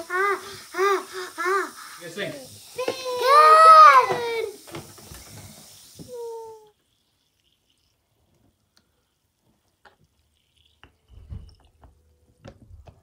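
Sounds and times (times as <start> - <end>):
tablets fizzing in tubes: 0.0 - 13.0.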